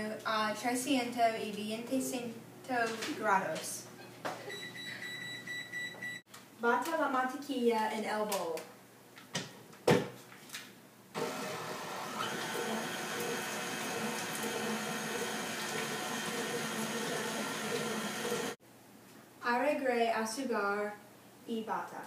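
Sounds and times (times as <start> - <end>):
stand mixer motor whining: 11.2 - 18.6.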